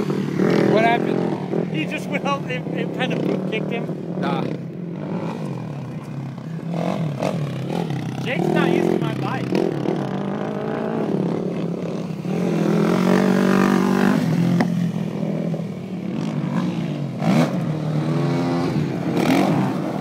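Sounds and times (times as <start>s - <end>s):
atv engine revving: 0.0s - 20.0s.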